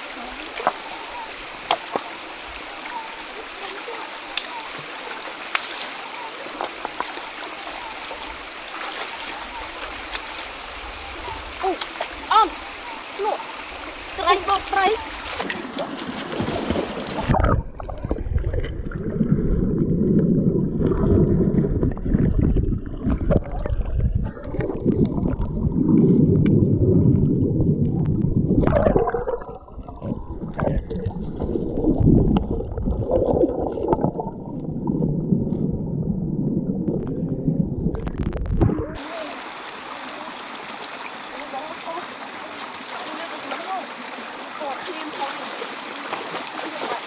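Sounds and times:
hissing stream: 0.0s - 47.0s
water splash: 2.9s - 35.2s, 37.9s - 47.0s
muffled underwater gurgling: 17.2s - 39.4s.

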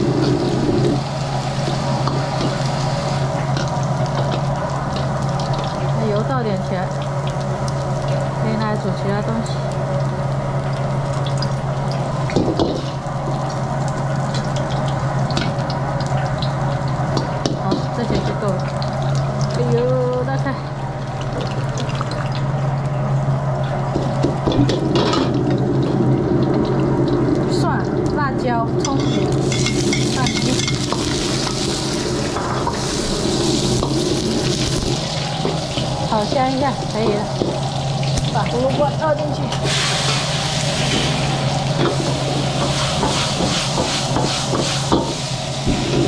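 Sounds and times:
meat sizzling in a wok: 0.0s - 22.6s, 23.8s - 46.0s
steady low hum: 0.0s - 46.0s
wok burner roar: 0.0s - 46.0s
metal ladle scraping wok: 29.0s - 31.6s.

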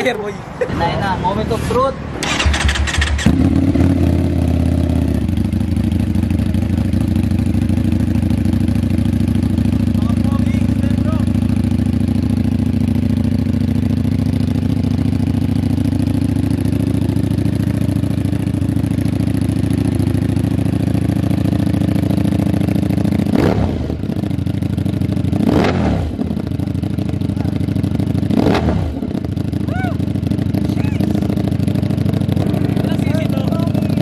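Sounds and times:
engine revving: 0.8s - 5.5s, 19.2s - 24.3s, 25.2s - 34.0s
motorcycle engine idling: 2.2s - 34.0s.

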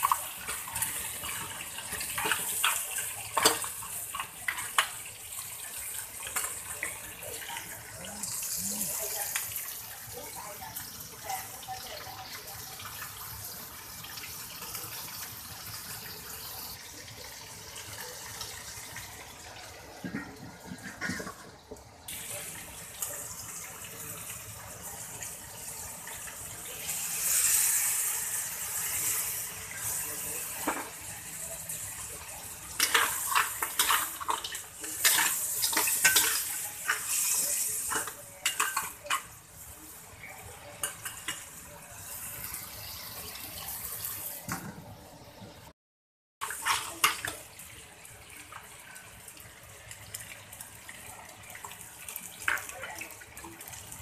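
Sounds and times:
crab frying in a wok: 0.0s - 45.7s, 46.4s - 54.0s
spatula scraping a wok: 20.1s - 21.5s, 32.8s - 39.3s.

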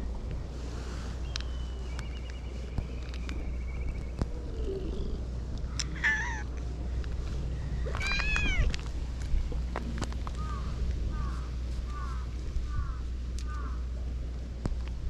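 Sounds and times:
cat meowing: 6.0s - 6.5s, 8.0s - 8.7s.

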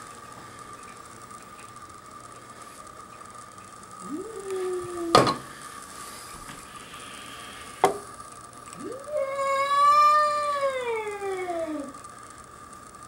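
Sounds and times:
cat crying: 8.8s - 11.9s.

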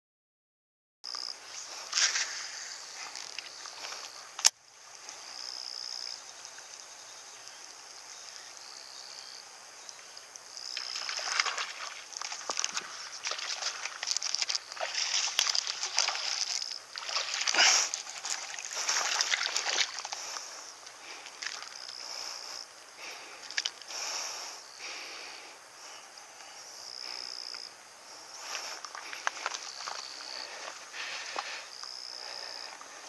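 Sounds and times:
fish splashing at water surface: 10.7s - 20.5s.

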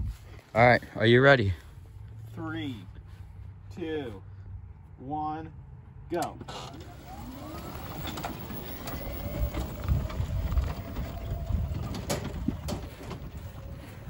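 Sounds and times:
golf cart motor whine: 6.4s - 14.0s
low rumble: 6.9s - 14.0s
sharp knocks and rattles: 7.0s - 14.0s.

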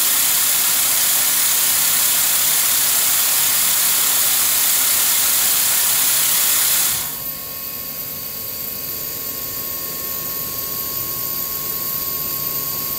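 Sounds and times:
loud machine hiss: 0.0s - 8.3s
machine hum with high whine: 0.0s - 12.9s.

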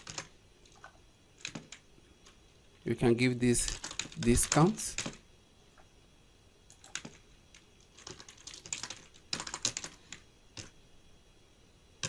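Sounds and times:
typing on computer keyboard: 0.0s - 1.8s, 3.6s - 5.2s, 6.7s - 10.7s.

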